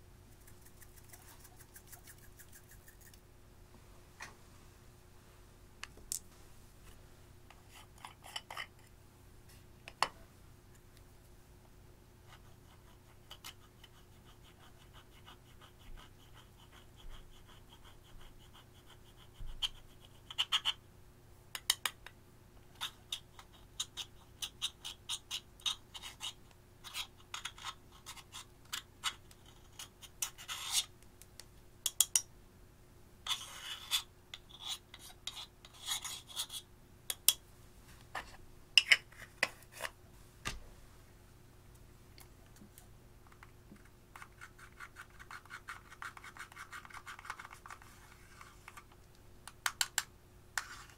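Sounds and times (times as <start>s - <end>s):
metal tool scratching eyeshadow: 22.8s - 30.9s, 33.3s - 36.6s, 44.2s - 47.9s.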